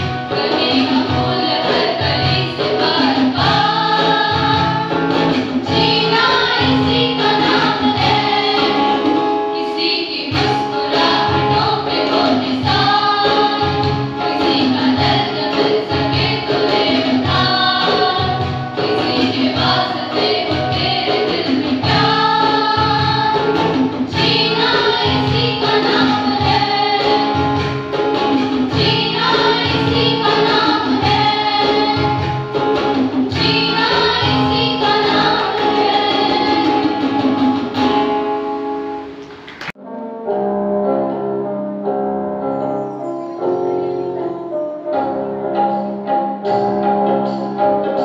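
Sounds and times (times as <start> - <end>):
group singing in chorus: 0.0 - 38.0
guitar and keyboard accompaniment: 0.0 - 48.0.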